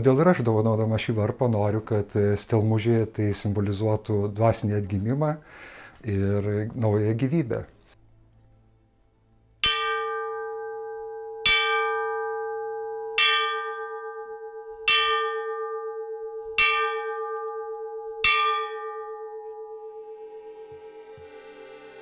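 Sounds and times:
church bell ringing: 9.6s - 22.0s.

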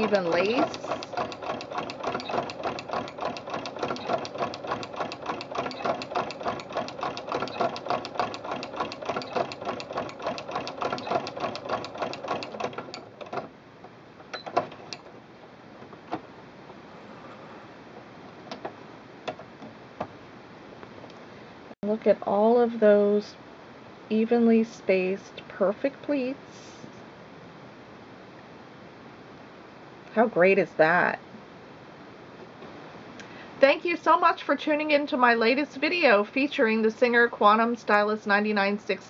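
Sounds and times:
sewing machine stitching: 0.0s - 13.5s, 14.3s - 15.1s.

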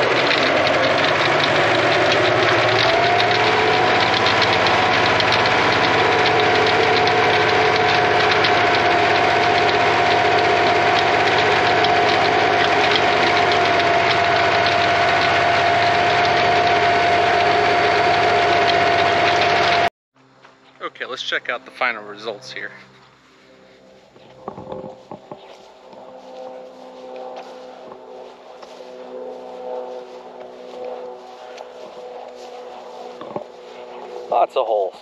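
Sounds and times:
fast even ticking: 0.0s - 19.9s
tractor engine running: 0.0s - 19.9s, 20.9s - 35.0s
steady whine: 0.0s - 35.0s.

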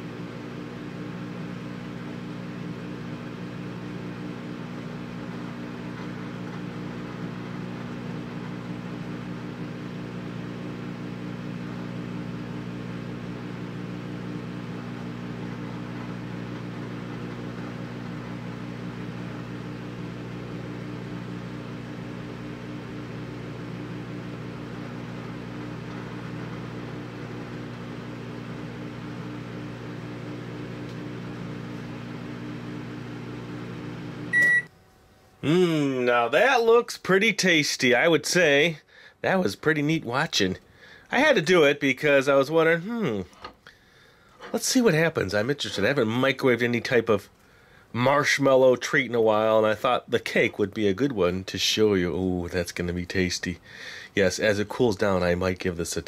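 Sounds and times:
microwave oven humming: 0.0s - 37.2s, 39.7s - 48.6s
microwave beep: 33.6s - 34.8s.

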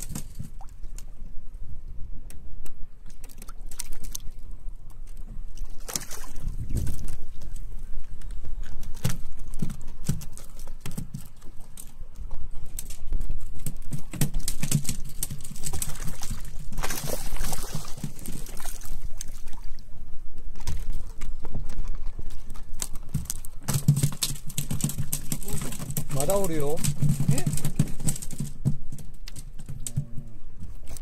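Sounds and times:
water sloshing against hull: 0.0s - 31.0s
knocks and clatter on boat deck: 9.0s - 11.5s, 13.1s - 16.8s, 23.1s - 30.8s.

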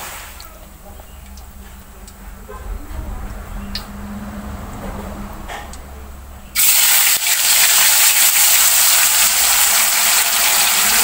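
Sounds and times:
deep frying sizzle: 6.5s - 11.0s.

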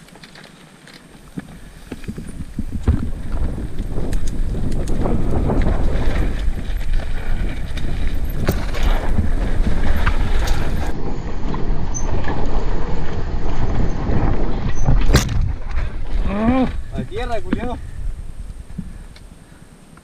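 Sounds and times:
bike knocking and rattling: 0.0s - 19.2s
tyres rumbling on dirt: 0.0s - 19.2s
wind buffeting microphone: 1.5s - 19.7s.

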